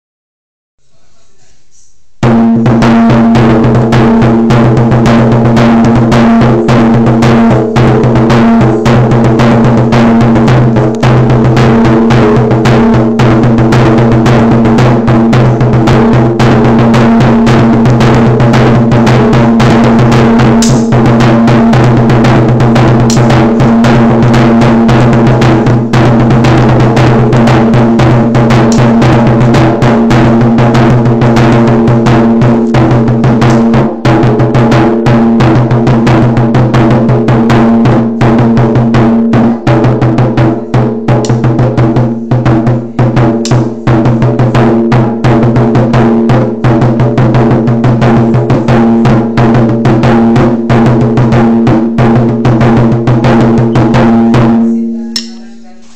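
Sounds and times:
drum played in fast strokes: 0:02.2 - 0:55.9
low ring: 0:54.3 - 0:55.6.

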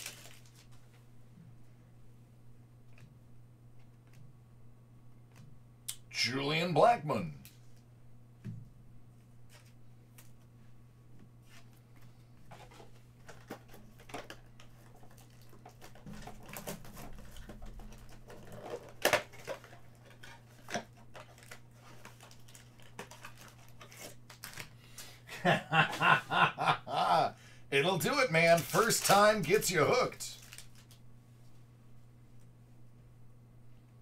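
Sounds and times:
cardboard box and foil rustling: 0:00.0 - 0:00.8, 0:12.5 - 0:24.7, 0:28.1 - 0:31.0
foil packs crinkling: 0:00.0 - 0:00.8, 0:12.6 - 0:25.1, 0:27.9 - 0:31.0
low steady hum: 0:00.0 - 0:34.0
man speaking: 0:06.1 - 0:07.4, 0:26.6 - 0:30.4.

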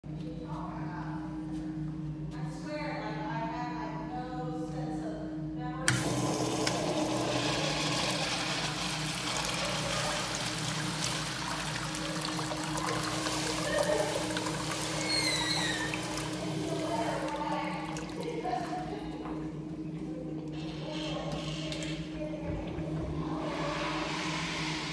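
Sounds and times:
urinal water rushing: 0:05.9 - 0:19.8, 0:22.4 - 0:24.9.

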